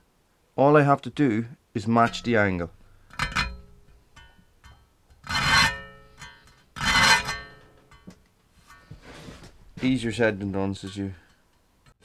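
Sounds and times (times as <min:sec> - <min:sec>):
file rasping on saw blade: 0:05.3 - 0:07.6
metallic ringing of blade: 0:05.4 - 0:08.1.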